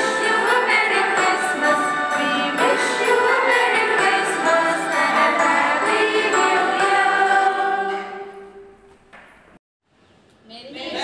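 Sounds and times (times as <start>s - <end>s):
group of voices singing: 0.0s - 8.7s
group singing a christmas song: 0.0s - 8.8s.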